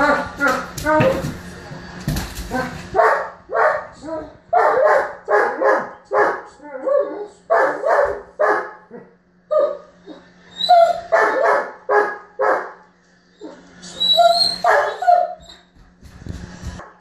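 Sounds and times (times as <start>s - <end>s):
dog barking and yipping: 3.0s - 8.8s, 10.7s - 12.8s, 14.0s - 15.5s.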